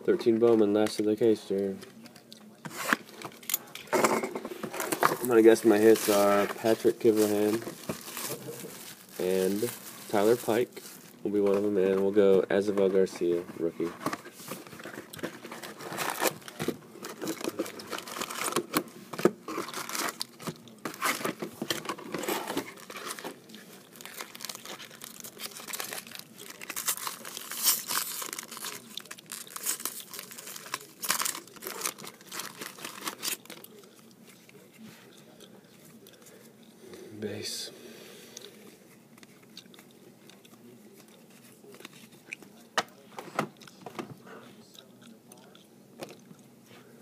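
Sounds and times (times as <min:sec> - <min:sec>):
foil packs crinkling and tearing: 0:04.9 - 0:11.8, 0:15.0 - 0:18.8, 0:19.4 - 0:34.6.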